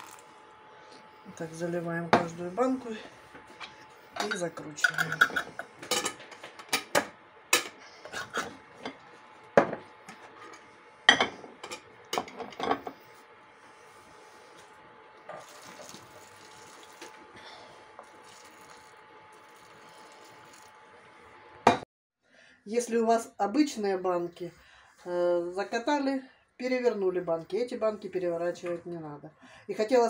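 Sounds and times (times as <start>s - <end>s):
liquid trickling through funnel: 15.3s - 17.3s, 18.0s - 20.9s.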